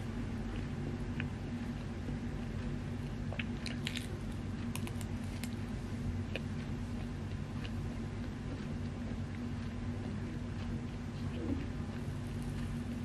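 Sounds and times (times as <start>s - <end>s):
chewing pastry crackles: 0.0s - 13.0s
steady low hum: 0.0s - 13.0s.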